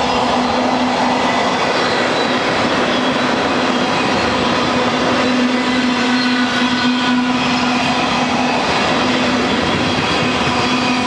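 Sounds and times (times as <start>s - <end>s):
freight train rumbling on rails: 0.0s - 11.0s.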